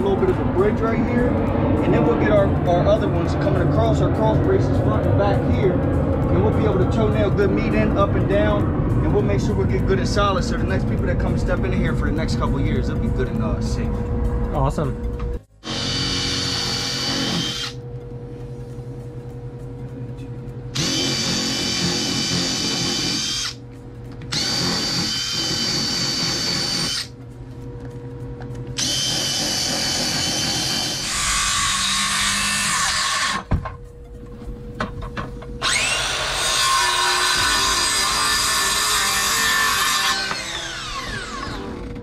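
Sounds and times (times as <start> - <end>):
circular saw whining: 15.6 - 17.8, 35.6 - 42.0
power drill driving screws into wood: 15.6 - 17.8, 20.8 - 23.6, 24.3 - 27.1, 28.8 - 33.4, 35.6 - 41.7.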